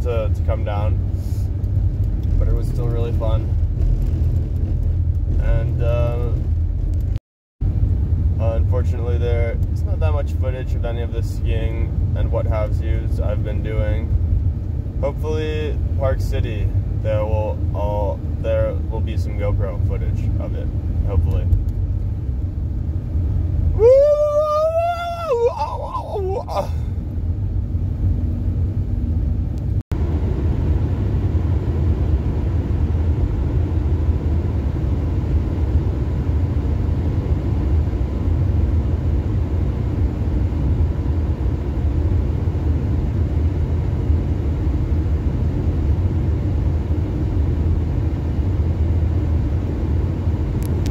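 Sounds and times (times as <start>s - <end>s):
vehicle cabin road rumble: 0.0s - 50.9s
wavering howling voice: 23.7s - 26.9s.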